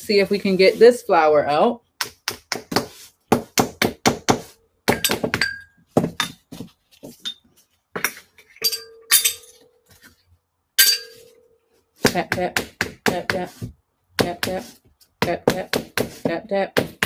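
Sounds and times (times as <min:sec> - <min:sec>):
metal spoon tapping on mold: 0:04.9 - 0:06.4.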